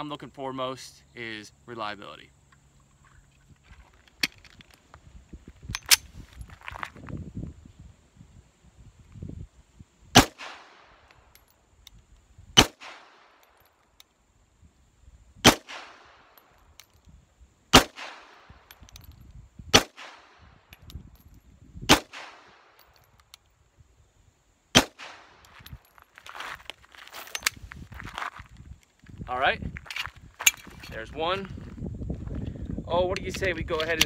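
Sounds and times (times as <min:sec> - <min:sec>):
pistol shots with echo: 0:10.2 - 0:10.9, 0:12.6 - 0:13.3, 0:15.4 - 0:16.3, 0:17.7 - 0:18.6, 0:19.7 - 0:20.4, 0:21.9 - 0:22.7, 0:24.8 - 0:25.3.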